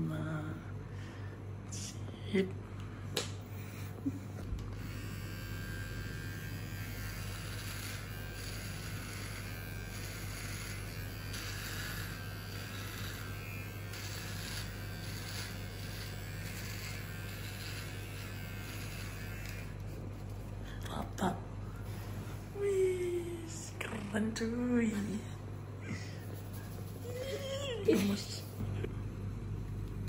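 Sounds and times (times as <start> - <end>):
electric hair clipper buzzing: 3.2 - 20.3.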